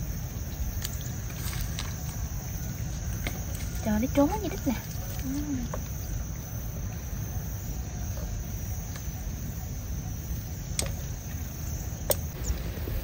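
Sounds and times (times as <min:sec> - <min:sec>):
low rumble: 0:12.3 - 0:13.0.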